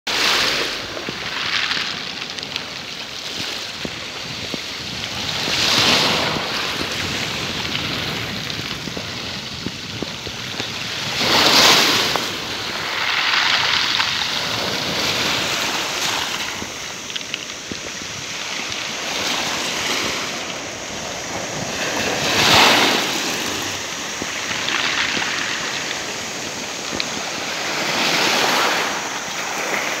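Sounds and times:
waves washing on a pebble beach: 0.1 - 30.0.

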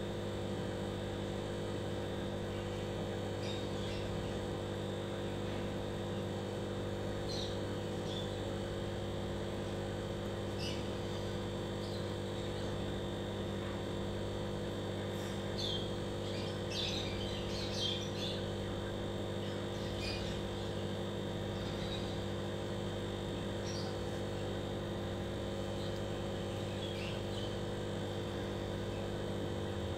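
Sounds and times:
aquarium air pump humming: 0.0 - 29.9
birds chirping: 2.5 - 4.4, 7.2 - 8.6, 10.4 - 12.8, 15.0 - 22.4, 23.3 - 29.3.

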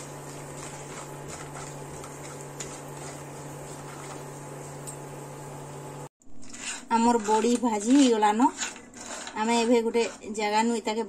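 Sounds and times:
dumplings sizzling in oil: 0.0 - 6.1.

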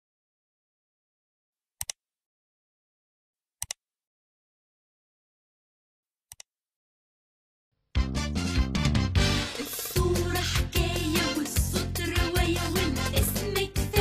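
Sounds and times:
computer mouse double click: 1.8 - 2.0, 3.6 - 3.8.

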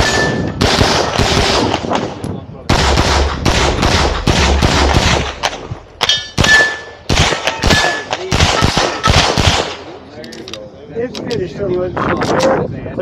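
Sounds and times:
rapid pistol shots: 0.0 - 9.9.

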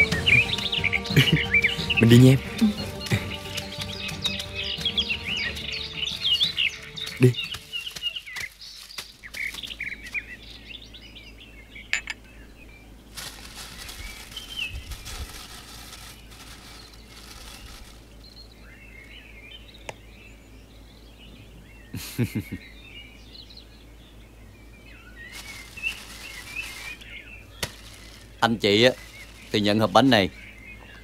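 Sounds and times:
small birds chirping: 0.0 - 31.0
soft rustling hiss: 12.9 - 19.2, 24.8 - 31.0.

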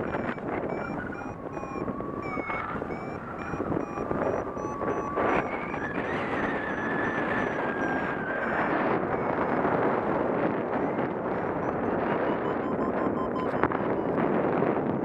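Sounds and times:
thin steady tone: 0.0 - 5.6, 10.7 - 14.2
variometer short high beeps: 0.0 - 5.8, 6.7 - 9.5, 10.7 - 14.2
wind rushing over microphone: 0.0 - 15.0.

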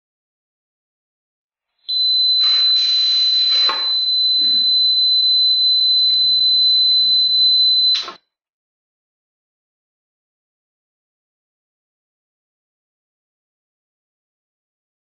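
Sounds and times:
high-pitched buzzer tone: 1.9 - 8.2.

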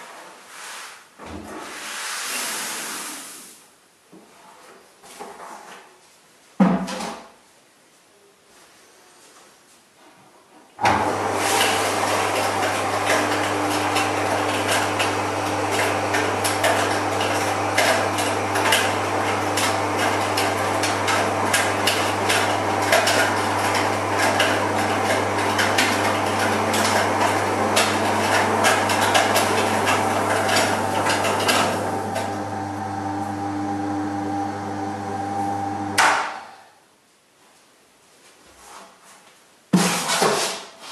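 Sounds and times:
electric motor hum: 10.9 - 36.0
grain cracking in a mill: 11.5 - 36.3.

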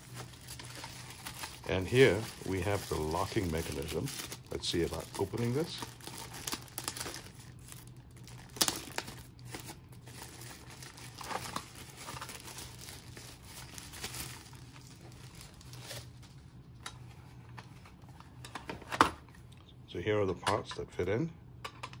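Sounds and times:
plastic wrapping crinkling: 0.0 - 16.5.

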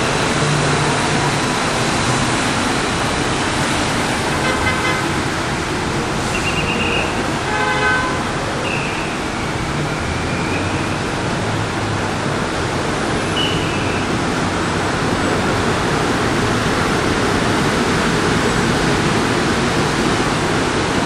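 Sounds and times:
street traffic noise: 0.0 - 21.0.

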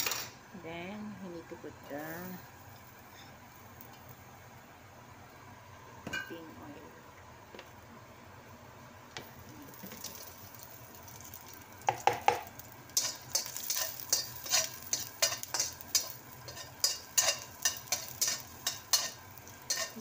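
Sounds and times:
oil sizzling: 1.8 - 6.3, 6.9 - 20.0
metal spatula scraping a wok: 12.9 - 20.0.

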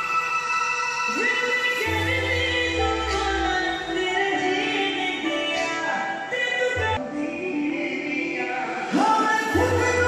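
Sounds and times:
background music with held notes: 0.0 - 10.0
deep bass: 1.9 - 4.2.

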